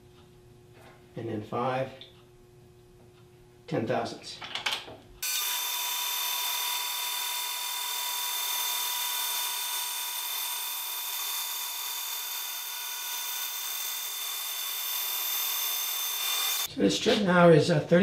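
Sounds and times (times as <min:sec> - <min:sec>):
band saw cutting wood: 0:05.2 - 0:16.7.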